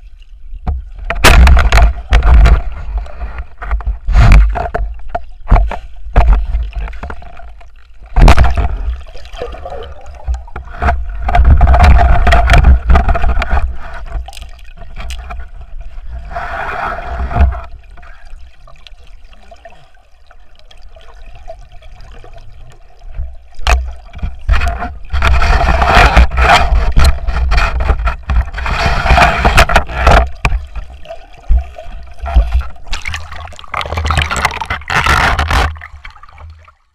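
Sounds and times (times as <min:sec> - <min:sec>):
muffled rushing underwater water: 0:00.0 - 0:36.9
knocks and scrapes on housing: 0:00.7 - 0:08.9, 0:10.6 - 0:14.3, 0:23.7 - 0:30.9, 0:33.8 - 0:35.9.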